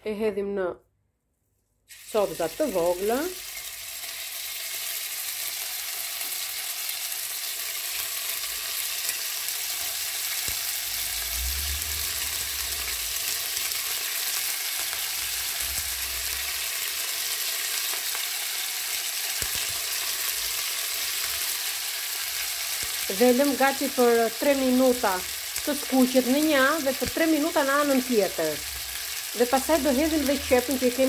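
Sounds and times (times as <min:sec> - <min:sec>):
meat sizzling in hot oil: 0:01.9 - 0:31.0.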